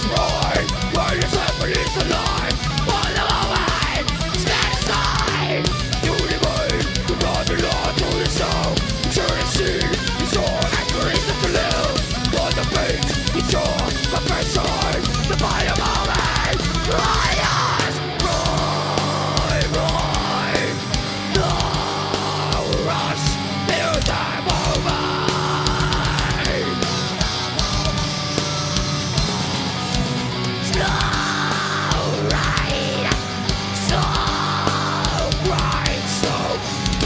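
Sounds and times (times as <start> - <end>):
fast kick-drum beat: 0.0 - 37.0
metal band playing: 0.0 - 37.0.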